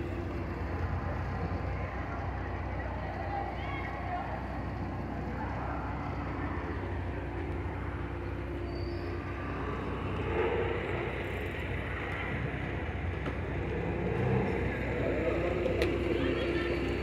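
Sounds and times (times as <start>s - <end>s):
horse-drawn carriage rumbling: 0.0s - 17.0s
traffic noise: 0.0s - 17.0s.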